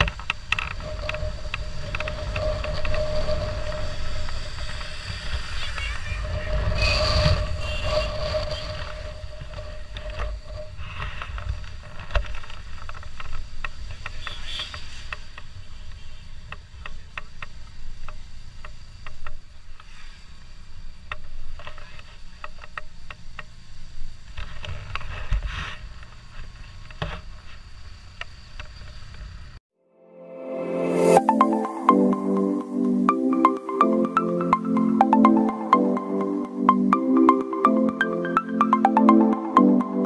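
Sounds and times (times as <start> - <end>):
motorcycle engine and wind rumble: 0.0 - 29.6.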